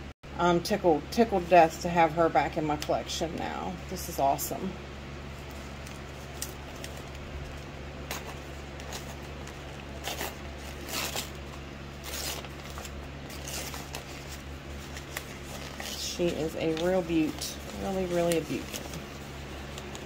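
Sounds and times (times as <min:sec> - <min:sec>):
steady low hum: 0:00.0 - 0:20.0
paper rustling and crinkling: 0:05.4 - 0:20.0.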